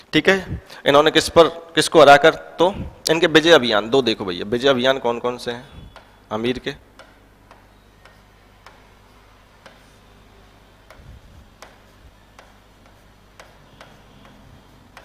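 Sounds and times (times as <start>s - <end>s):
low steady hum: 2.4s - 15.0s
writing taps on a board: 7.0s - 8.9s, 9.6s - 10.0s, 10.8s - 15.0s.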